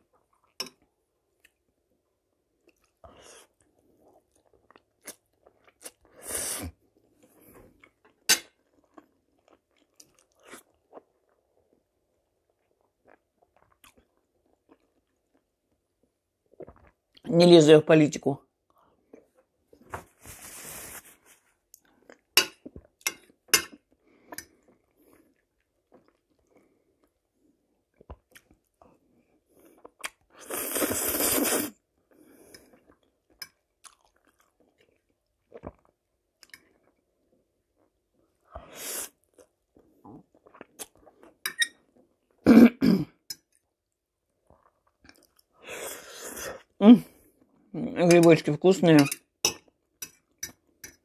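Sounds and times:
spaghetti slurp: 30.1 - 31.8
chewing and mouth clicks: 32.5 - 37.0.

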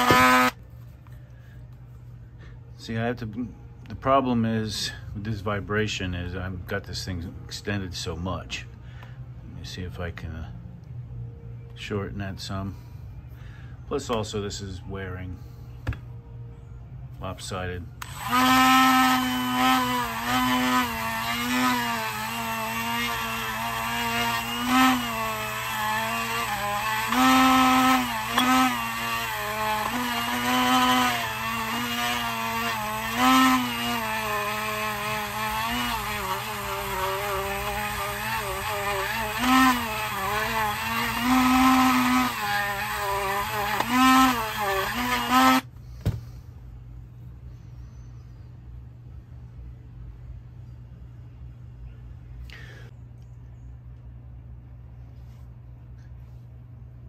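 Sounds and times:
rotary tool wire brush whine: 0.0 - 0.6, 18.0 - 45.7.

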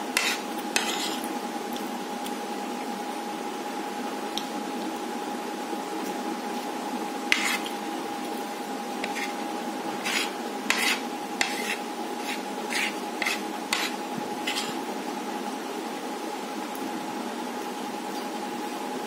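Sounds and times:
steady background hum: 0.0 - 19.0
metal spoon scraping a plate: 0.2 - 1.3, 7.3 - 7.7, 9.0 - 9.4, 10.0 - 14.8.

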